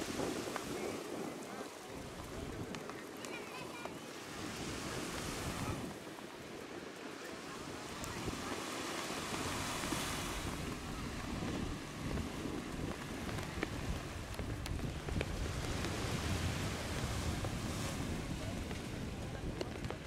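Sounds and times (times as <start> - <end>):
waves washing up sandy beach: 0.0 - 20.0
wind rumbling on microphone: 0.0 - 20.0.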